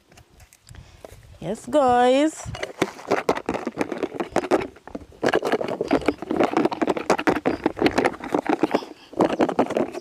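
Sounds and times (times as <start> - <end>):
food pieces rattling in a bowl: 2.4 - 10.0.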